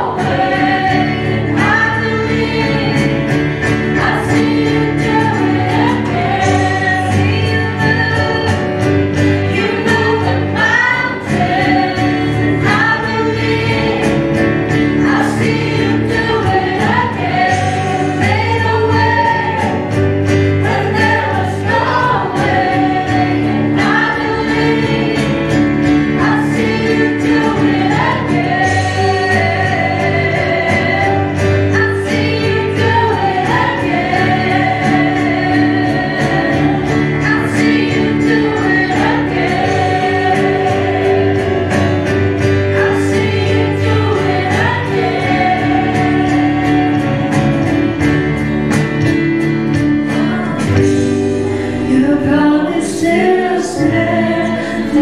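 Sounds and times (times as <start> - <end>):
band playing keyboard guitar and beat: 0.0 - 55.0
group singing into microphones: 0.0 - 55.0.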